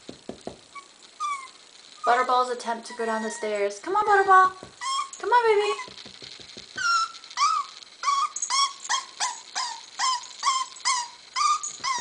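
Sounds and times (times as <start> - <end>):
puppy whining: 0.7 - 3.8, 4.7 - 5.2, 6.7 - 12.0.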